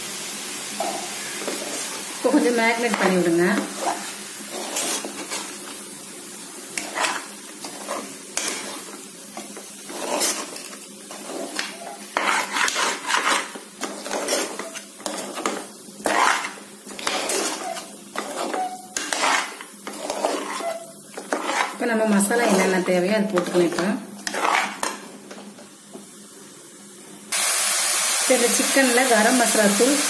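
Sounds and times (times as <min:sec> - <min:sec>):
spatula scraping metal pot: 0:02.8 - 0:05.6, 0:06.8 - 0:25.0.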